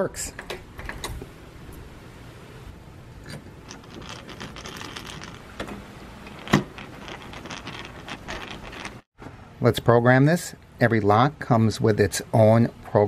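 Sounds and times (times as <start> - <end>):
screw rasping as it turns: 6.3 - 9.0.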